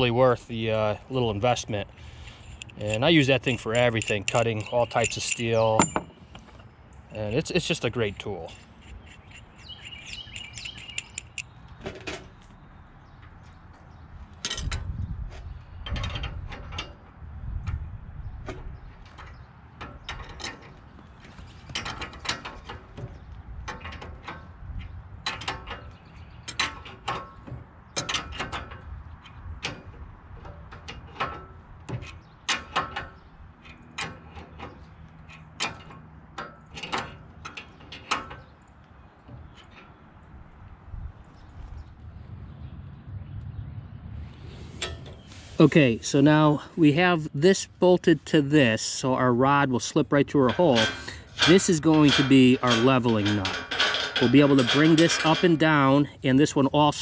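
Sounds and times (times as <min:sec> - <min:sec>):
wrenches clicking and clanking on bolts: 0:02.0 - 0:11.5, 0:19.0 - 0:40.0, 0:49.4 - 0:57.0.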